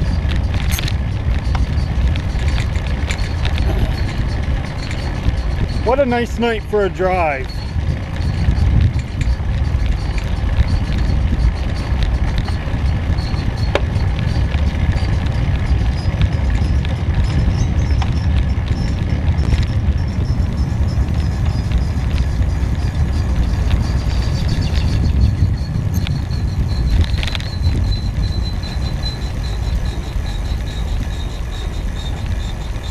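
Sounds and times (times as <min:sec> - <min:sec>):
road rumble: 0:00.0 - 0:32.9
wind buffeting the microphone: 0:00.0 - 0:32.9.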